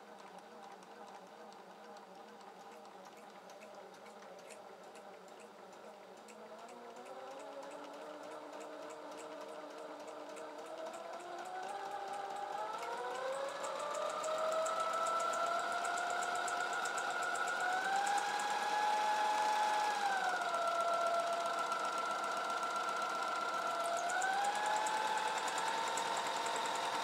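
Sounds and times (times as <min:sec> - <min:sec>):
sewing machine ticking: 0:00.0 - 0:27.0
electric motor whine: 0:06.4 - 0:27.0.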